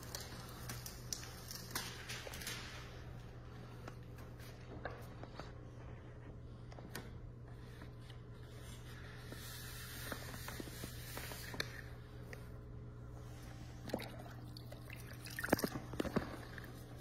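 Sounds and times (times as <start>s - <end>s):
paper taps and crinkles: 0.0s - 3.0s
low room hum: 0.0s - 17.0s.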